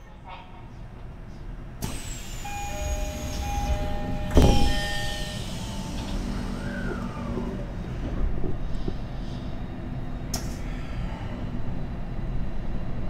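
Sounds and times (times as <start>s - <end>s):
train doors thudding shut: 1.8s - 9.0s
train door chime beeping: 1.9s - 6.6s
high whines falling in pitch: 2.3s - 7.6s.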